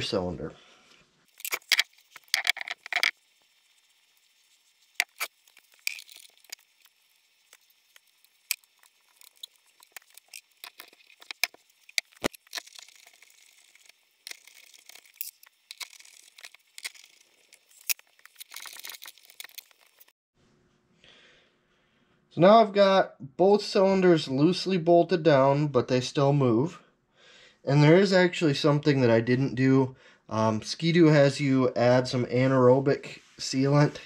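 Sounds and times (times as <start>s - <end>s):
metal parts clinking: 1.3s - 3.1s, 8.6s - 20.1s.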